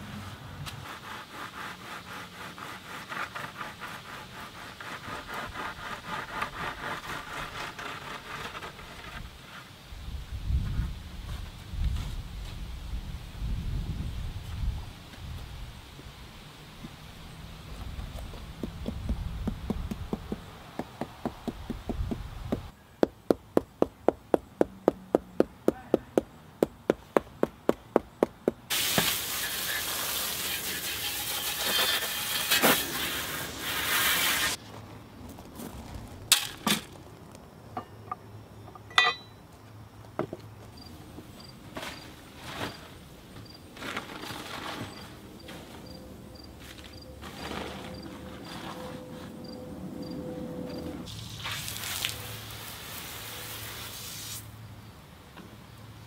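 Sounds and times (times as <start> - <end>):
water jet hissing into wheelbarrow: 28.7 - 34.6, 51.1 - 54.6
insects chirping faintly: 36.8 - 43.7, 44.8 - 50.9.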